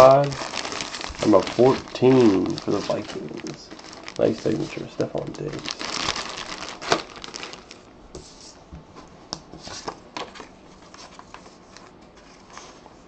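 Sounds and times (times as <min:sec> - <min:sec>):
paper card crackling: 0:00.0 - 0:07.8
plastic bag crinkling: 0:00.0 - 0:08.0.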